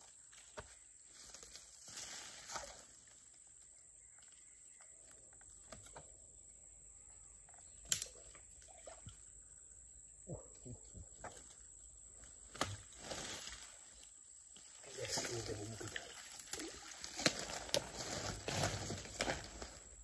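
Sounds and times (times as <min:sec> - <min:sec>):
rustling on dry palm fronds: 0:00.0 - 0:03.6, 0:12.1 - 0:20.0
high insect drone: 0:00.9 - 0:20.0.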